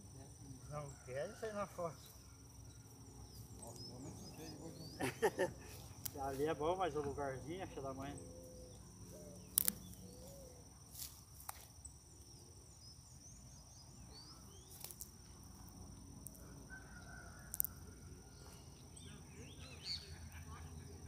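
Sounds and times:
faint bird chirps: 0:07.9 - 0:10.7, 0:16.3 - 0:21.0
sharp clicks: 0:09.5 - 0:09.9.

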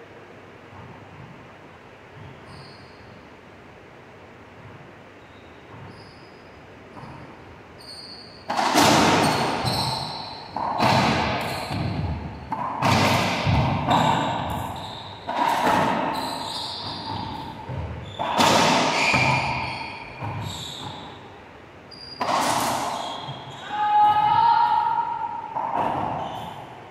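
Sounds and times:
shoes squeaking on hardwood floor: 0:02.1 - 0:03.3, 0:04.6 - 0:24.6, 0:25.7 - 0:26.7
racquetball hits echoing: 0:08.4 - 0:21.3, 0:22.2 - 0:26.8.

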